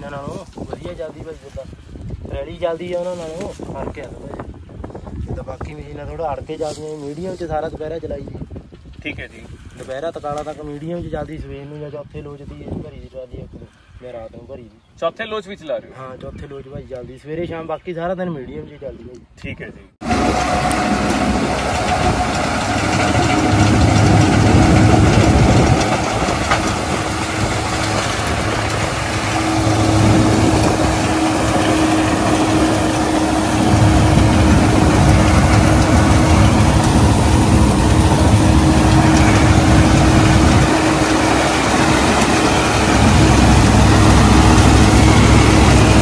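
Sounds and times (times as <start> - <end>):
steady tone: 20.0 - 46.0
straw reaper cutting straw: 20.0 - 46.0
tractor diesel engine running: 20.0 - 46.0.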